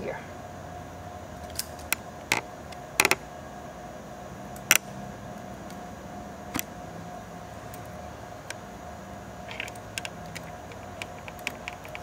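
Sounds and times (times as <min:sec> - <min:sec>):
faint steady hum: 0:00.0 - 0:12.0
fingers clicking and tapping hardware: 0:09.5 - 0:12.0.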